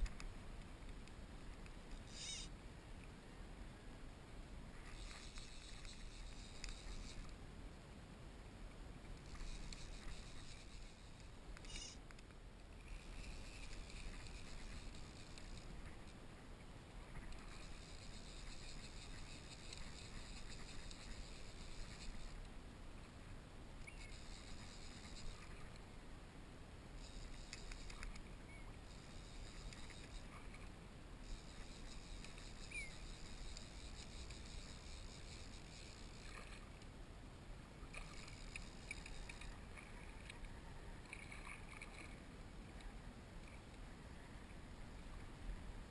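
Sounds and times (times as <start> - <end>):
small clicks: 0.0 - 3.1, 4.8 - 7.4, 9.1 - 16.2, 27.0 - 30.7, 31.3 - 36.9, 37.9 - 42.2.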